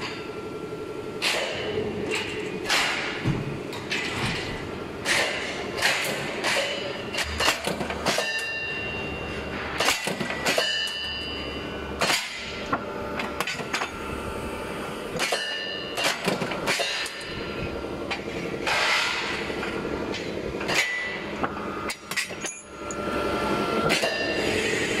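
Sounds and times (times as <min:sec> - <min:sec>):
machine drone: 0:00.0 - 0:25.0.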